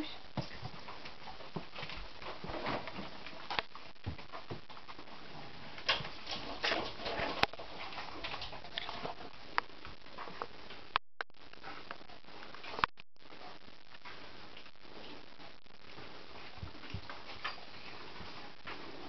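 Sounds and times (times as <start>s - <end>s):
dog paws tapping on wooden floor: 0.4s - 10.8s, 15.9s - 19.0s.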